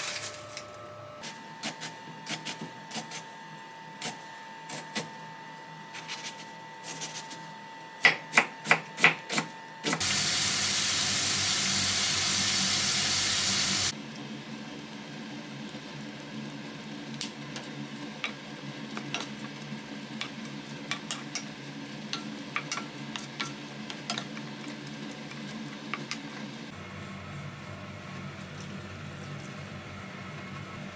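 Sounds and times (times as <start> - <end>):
loud steady hiss: 10.0 - 13.9
vegetables sizzling in a pan: 10.0 - 13.9.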